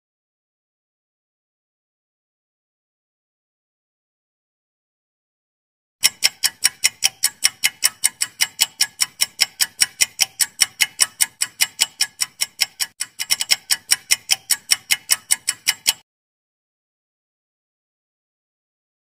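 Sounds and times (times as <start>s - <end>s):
fast clock-like ticking: 6.0s - 16.0s.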